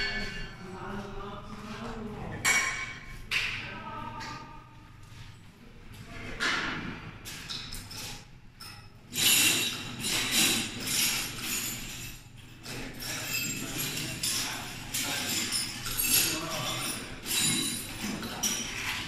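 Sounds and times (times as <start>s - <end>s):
metal clinking and rattling: 7.3s - 19.0s.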